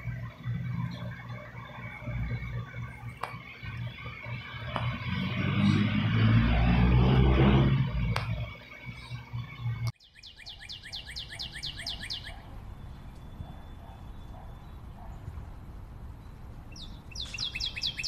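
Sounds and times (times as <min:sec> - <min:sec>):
loud low rumble: 0:00.0 - 0:09.8
high falling bird-like chirps: 0:00.0 - 0:14.8, 0:16.2 - 0:18.0.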